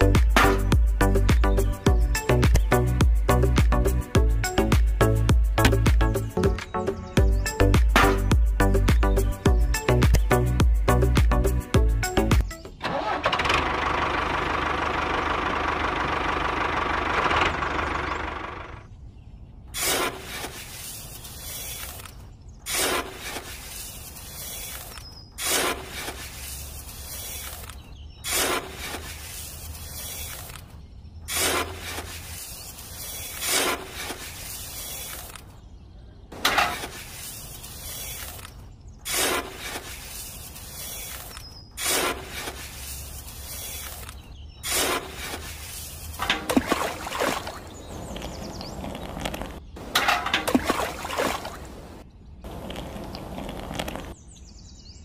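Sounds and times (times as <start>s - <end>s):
sand and cement pouring: 19.8s - 30.7s, 31.3s - 35.4s, 36.4s - 51.7s
scraping in metal buckets: 25.4s - 27.4s, 28.3s - 30.3s, 31.3s - 34.6s, 36.4s - 38.3s, 41.8s - 44.0s, 44.6s - 47.6s, 49.8s - 51.6s.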